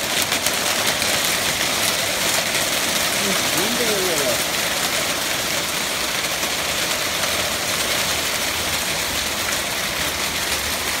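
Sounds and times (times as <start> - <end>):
hail falling: 0.0 - 11.0.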